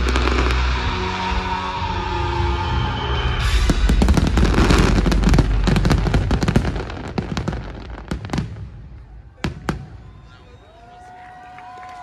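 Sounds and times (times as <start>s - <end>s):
fireworks bangs and crackling: 0.0s - 1.4s, 3.2s - 10.6s.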